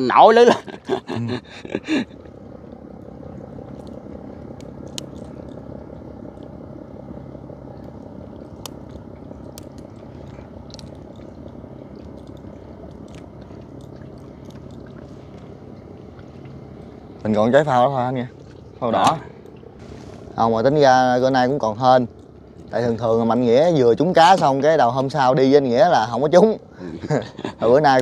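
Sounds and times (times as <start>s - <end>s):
small boat engine running: 0.0s - 28.0s.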